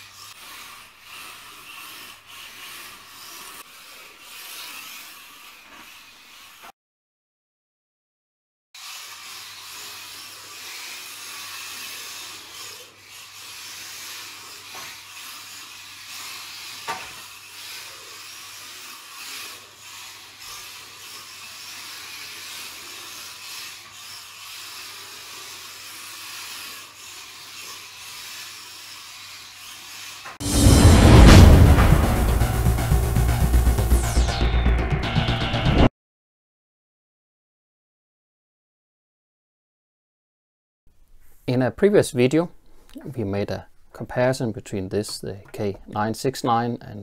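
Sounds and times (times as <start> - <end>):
small electric motors buzzing: 0.0 - 6.7, 8.8 - 30.4
tyres scrubbing: 0.0 - 6.7, 8.8 - 34.4
loud music: 30.4 - 35.9.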